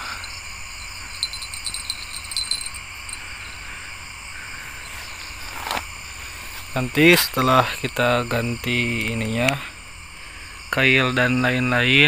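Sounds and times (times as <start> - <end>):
faint ticks: 0.0 - 3.6
crickets chirring: 0.0 - 12.0.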